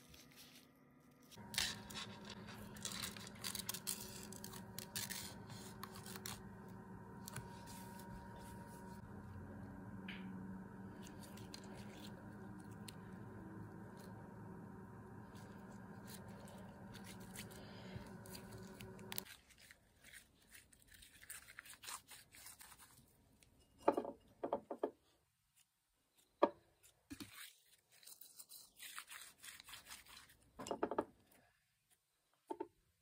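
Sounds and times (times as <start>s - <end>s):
steady low hum: 1.4s - 19.2s.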